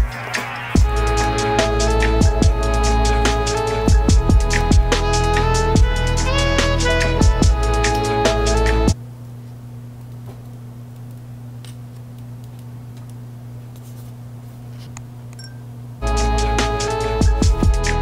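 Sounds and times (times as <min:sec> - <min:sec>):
background music: 0:00.0 - 0:09.0, 0:16.0 - 0:18.0
low electrical hum: 0:00.8 - 0:18.0.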